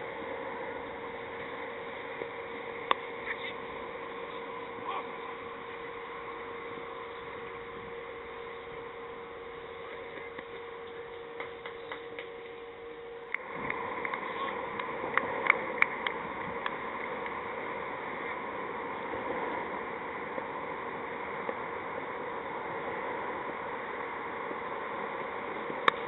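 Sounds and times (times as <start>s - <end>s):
outdoor background noise: 0.0s - 26.0s.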